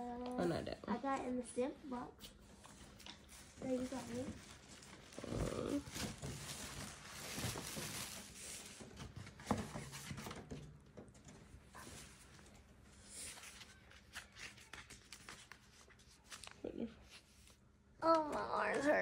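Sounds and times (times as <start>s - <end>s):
tissue paper rustling: 2.5s - 10.2s, 11.8s - 17.6s.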